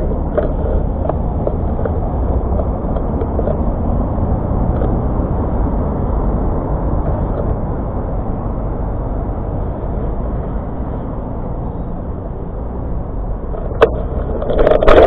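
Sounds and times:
wind rumble: 0:00.0 - 0:15.0
light clicks and rattles: 0:13.5 - 0:15.0.

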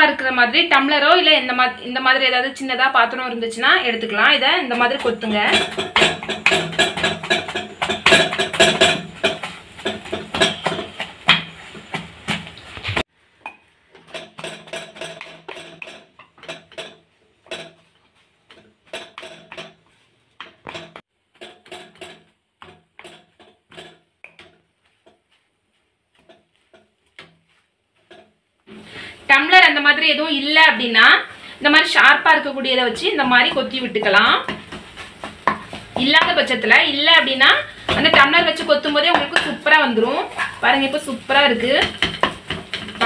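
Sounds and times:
steel rim chopping in a pan: 0:04.1 - 0:25.4, 0:32.7 - 0:43.0.

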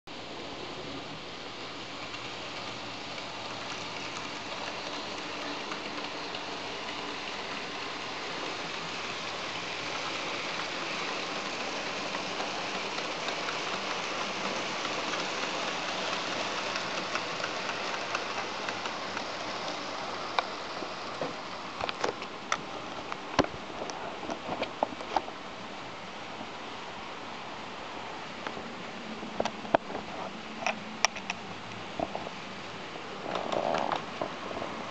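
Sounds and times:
model train wheels whirring on rails: 0:00.1 - 0:25.2.

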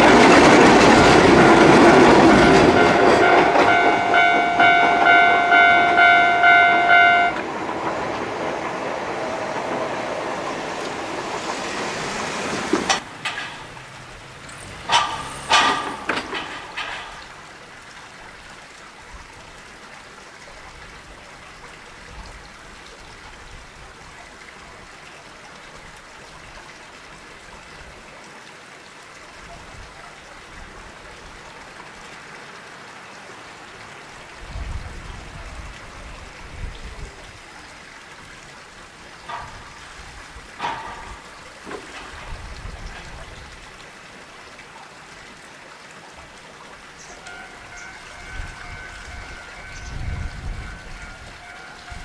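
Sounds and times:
outdoor background hiss: 0:04.1 - 0:29.4
sharp clacks and knocks: 0:12.6 - 0:17.5, 0:39.2 - 0:42.4.

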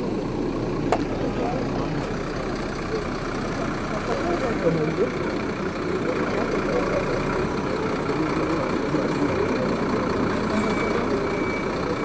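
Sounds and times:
engine running: 0:00.0 - 0:12.0
faint short beeps: 0:10.5 - 0:12.0.

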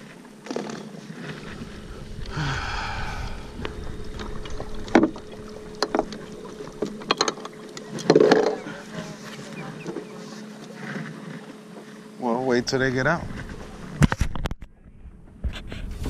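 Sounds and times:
rush of noise: 0:01.3 - 0:05.7.

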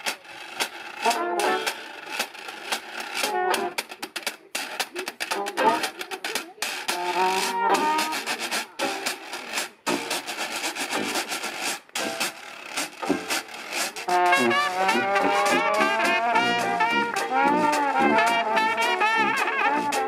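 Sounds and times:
banjos strumming: 0:00.0 - 0:20.0
washboard scraping: 0:00.0 - 0:20.0
cornets playing: 0:00.9 - 0:02.2, 0:03.1 - 0:04.0, 0:06.9 - 0:09.4, 0:12.8 - 0:20.0
trombone sliding between notes: 0:01.0 - 0:01.8, 0:06.9 - 0:08.3, 0:14.0 - 0:20.0.

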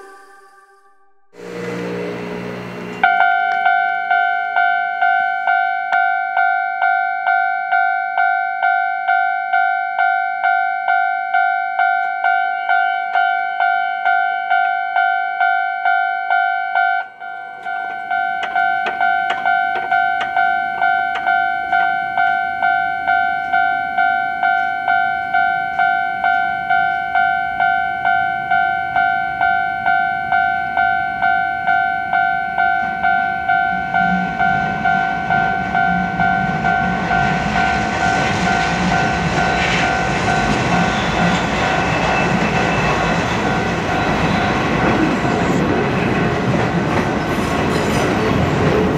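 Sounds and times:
electric train approaching: 0:00.0 - 0:48.9
level-crossing warning bell clanging: 0:01.3 - 0:48.9.

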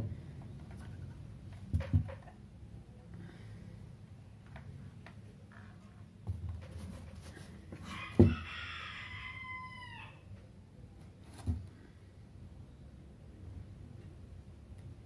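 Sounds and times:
rooster crowing: 0:07.8 - 0:10.3.

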